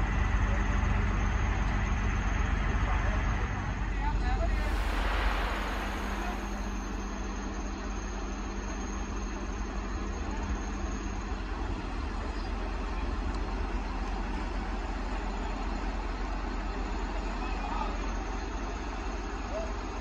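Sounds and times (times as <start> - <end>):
faint high whine: 4.3 - 8.9.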